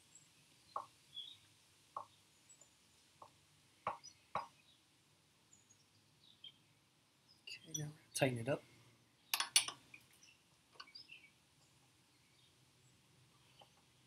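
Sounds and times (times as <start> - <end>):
faint metal clicks: 9.3 - 11.0.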